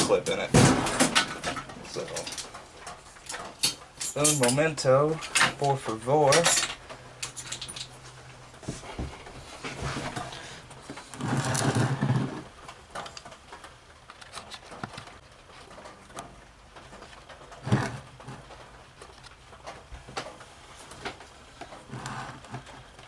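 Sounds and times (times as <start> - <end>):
metal scraping on wooden floor: 8.6 - 12.5, 17.5 - 18.6, 21.6 - 23.0.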